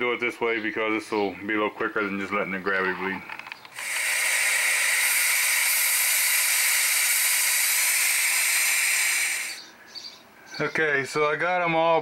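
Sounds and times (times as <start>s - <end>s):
pneumatic bleeder hissing: 3.7s - 9.7s.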